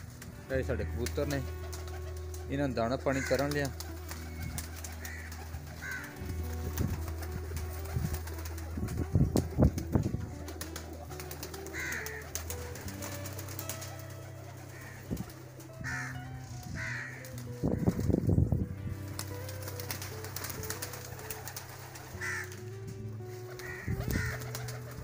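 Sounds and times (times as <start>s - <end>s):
pigeons cooing: 1.0s - 2.5s, 3.1s - 18.2s, 18.9s - 25.0s.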